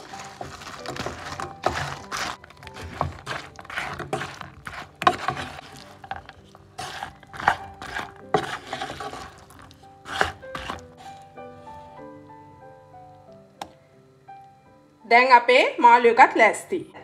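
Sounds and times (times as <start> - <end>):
spatula scraping a pan: 0.0 - 12.0
background music: 0.0 - 17.0.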